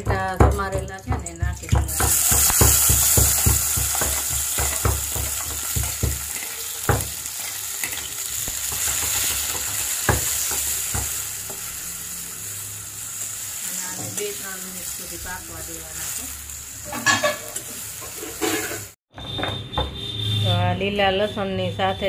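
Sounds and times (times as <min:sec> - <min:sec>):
metal spoon tapping on pan: 0:00.0 - 0:07.2
tomatoes sizzling in hot oil: 0:01.7 - 0:19.0.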